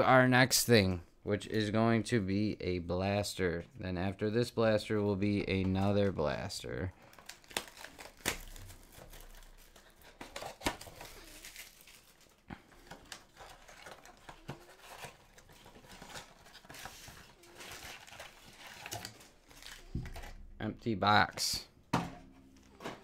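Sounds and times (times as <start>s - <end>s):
plastic wrap crinkling: 6.0s - 20.5s
cardboard tearing: 7.2s - 20.3s.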